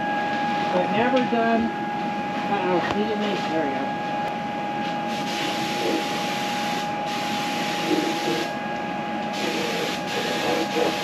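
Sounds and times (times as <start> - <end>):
steady high hum: 0.0 - 11.0
paint spray gun hissing: 5.1 - 6.1, 6.7 - 8.5, 9.4 - 11.0.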